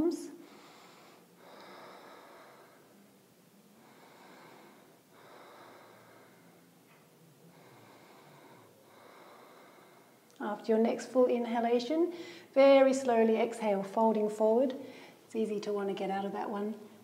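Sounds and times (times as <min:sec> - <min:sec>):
slow deep breathing: 0:00.4 - 0:10.4, 0:12.1 - 0:12.5, 0:14.8 - 0:15.3.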